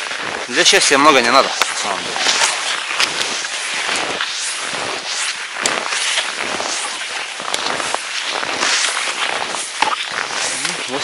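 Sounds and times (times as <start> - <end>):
skis swishing through snow: 0.0 - 11.0.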